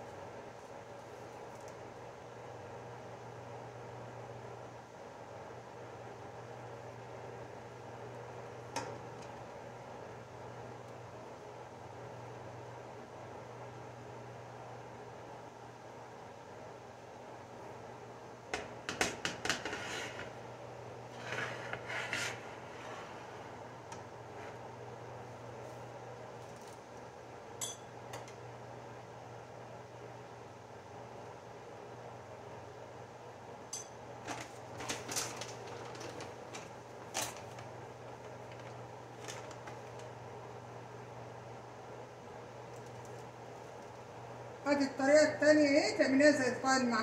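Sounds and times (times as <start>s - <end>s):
spatula scraping griddle pan: 19.4s - 20.4s, 21.1s - 23.6s
plastic bag crackling: 34.2s - 40.1s.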